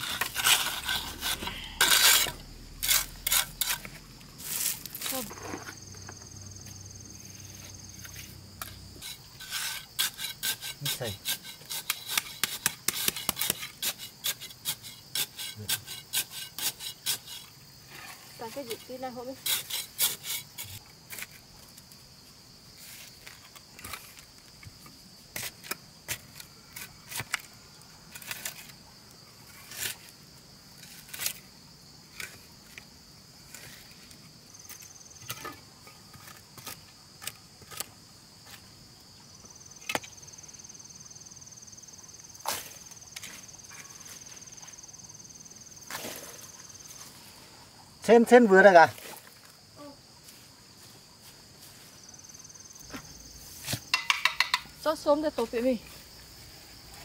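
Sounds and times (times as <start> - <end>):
higher insect tone: 0.0 - 11.7, 38.9 - 57.0
insects buzzing: 0.0 - 57.0
sharp wooden knocks: 53.9 - 54.7.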